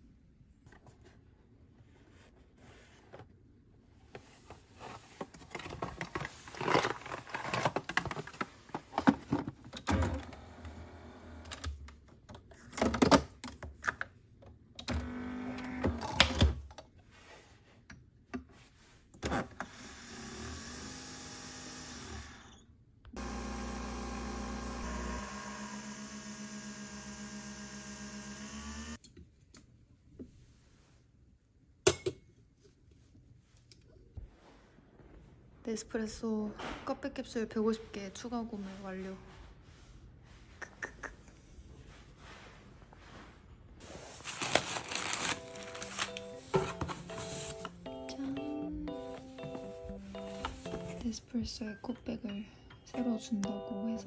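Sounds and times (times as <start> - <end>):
coffee machine motor hum: 23.2 - 29.0.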